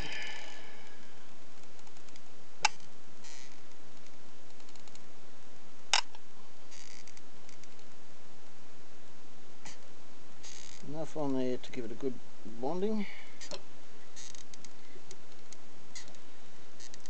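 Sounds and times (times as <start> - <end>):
steady hiss: 0.0 - 17.0
faint ticks: 13.4 - 16.2.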